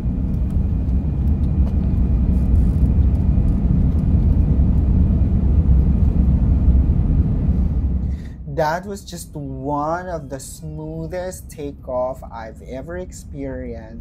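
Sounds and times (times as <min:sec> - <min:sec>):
rushing air: 0:00.0 - 0:08.7
faint high whine: 0:00.0 - 0:14.0
jet engines rumbling: 0:00.0 - 0:14.0.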